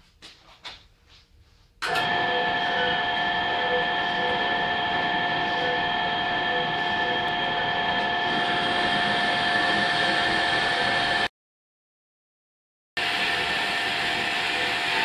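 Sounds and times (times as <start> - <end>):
bandsaw whining: 1.8 - 11.3, 13.0 - 15.0.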